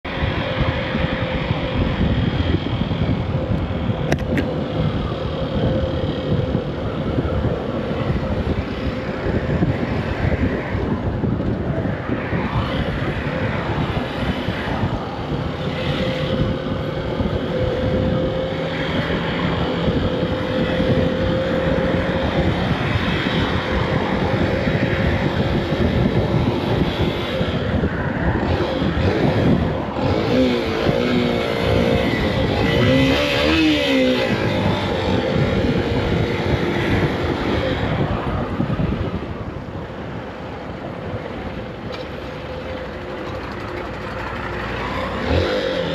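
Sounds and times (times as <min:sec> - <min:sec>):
wind and road rush: 0:00.0 - 0:45.9
motorcycle engine running: 0:41.0 - 0:45.9.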